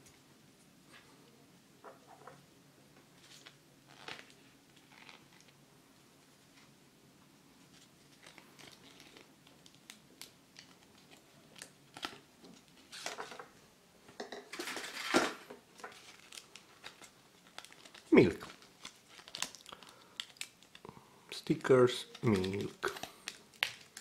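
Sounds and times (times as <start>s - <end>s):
paper sticker sheet rustling: 21.6s - 24.0s.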